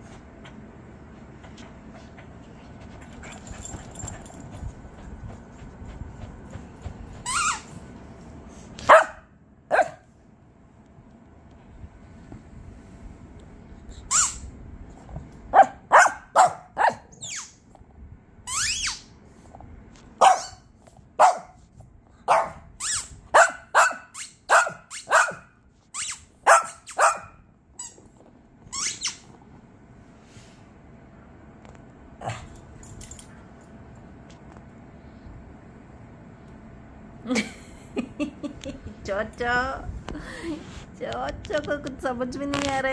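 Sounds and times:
small dog yapping: 20.2s - 20.6s, 22.3s - 27.4s.

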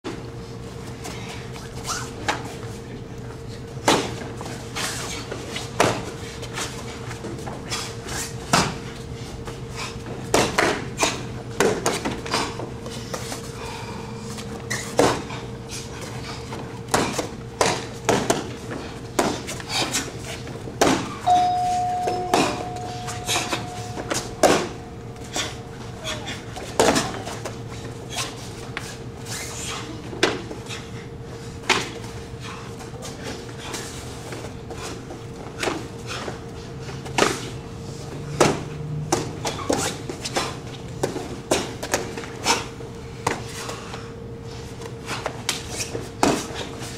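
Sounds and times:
steady electrical hum: 0.1s - 46.9s
steady high tone: 21.3s - 26.0s.

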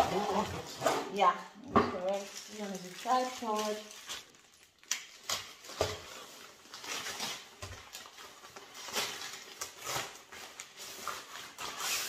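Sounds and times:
fabric and packaging rustling: 0.0s - 12.0s.

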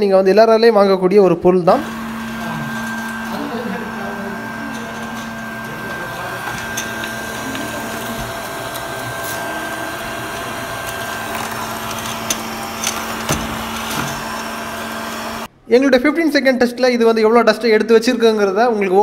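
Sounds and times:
robot vacuum motor hum: 1.7s - 15.5s.

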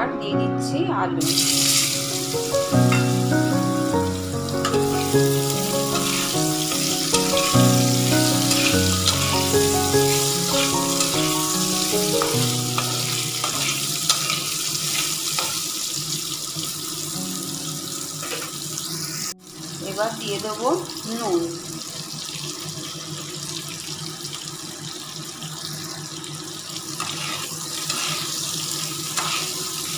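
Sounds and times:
background music: 0.0s - 14.9s, 17.1s - 19.2s
potatoes sizzling in hot oil: 1.2s - 29.9s
metal spatula scraping: 4.6s - 15.7s, 27.0s - 28.5s, 29.1s - 29.9s.

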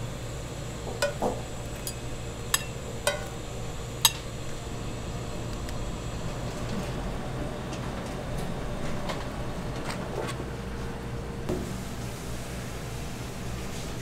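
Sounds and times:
dishes clinking: 1.0s - 3.4s.

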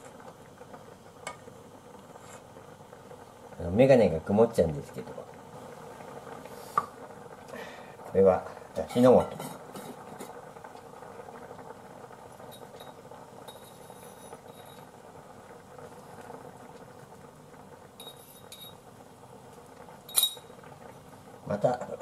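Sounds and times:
soup simmering in a pot: 0.0s - 22.0s
spoon clinking against glass jar: 20.1s - 20.5s.

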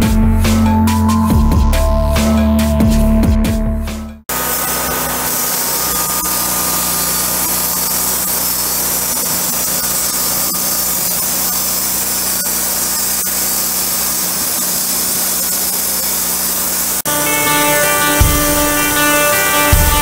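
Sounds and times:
band sawmill cutting log: 4.3s - 20.0s.

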